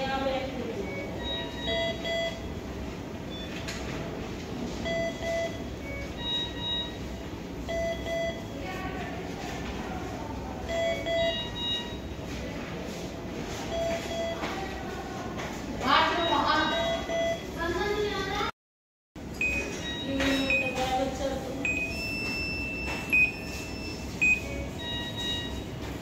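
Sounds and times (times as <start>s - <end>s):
room hum: 0.0s - 18.6s, 19.2s - 26.0s
monitor alarm beeping: 0.2s - 4.0s, 4.7s - 8.9s, 10.6s - 12.2s, 13.6s - 14.8s, 15.8s - 18.0s, 19.2s - 26.0s.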